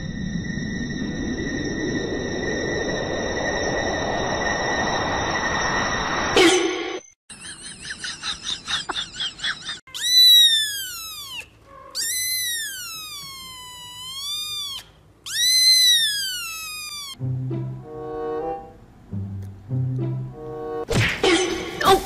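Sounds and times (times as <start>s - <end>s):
kitten meowing: 10.0s - 17.2s.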